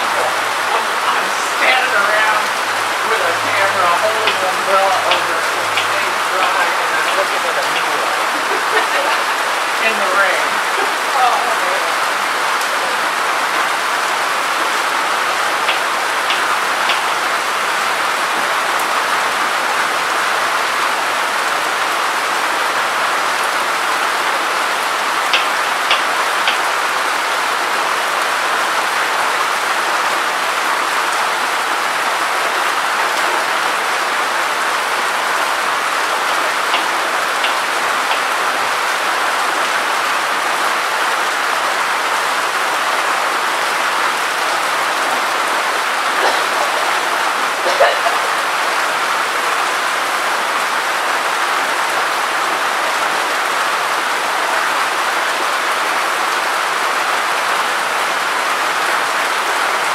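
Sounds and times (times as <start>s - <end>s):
steady rain on concrete: 0.0s - 59.9s
single raindrop ticks: 25.3s - 26.7s.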